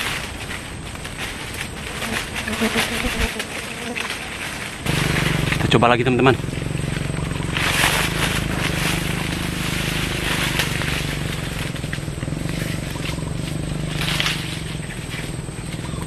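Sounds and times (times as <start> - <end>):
low hum: 0.0 - 16.0
rustling leaves and branches: 0.0 - 16.0.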